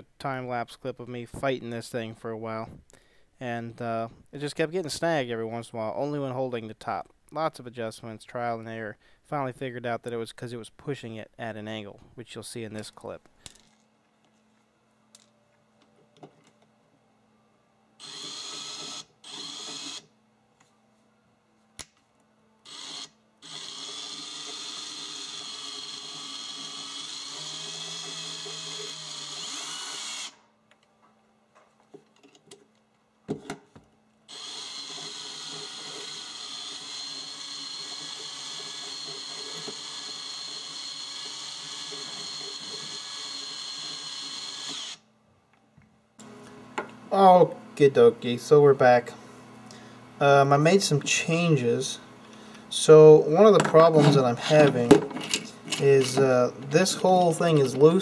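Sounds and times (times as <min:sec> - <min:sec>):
cordless drill spinning: 0:18.0 - 0:20.0, 0:22.7 - 0:30.4, 0:34.3 - 0:45.0.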